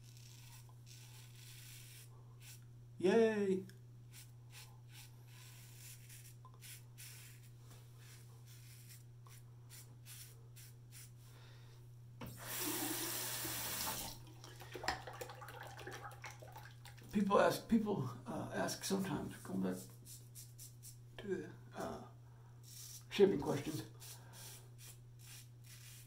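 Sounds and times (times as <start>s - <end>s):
razor scraping stubble: 0.0s - 2.6s, 4.1s - 11.1s, 22.7s - 26.0s.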